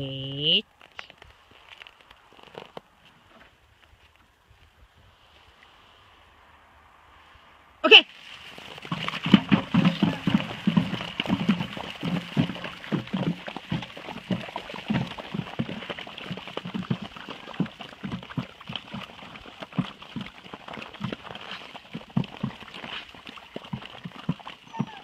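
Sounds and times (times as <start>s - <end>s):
dogs chewing and slurping: 8.2s - 25.0s
bowl clattering: 8.8s - 13.8s
paws scuffing on snow: 13.9s - 25.0s.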